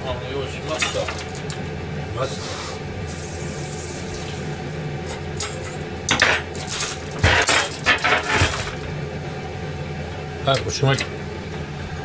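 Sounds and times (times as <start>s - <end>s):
dishes and utensils clattering: 0.7s - 1.6s, 5.1s - 8.8s.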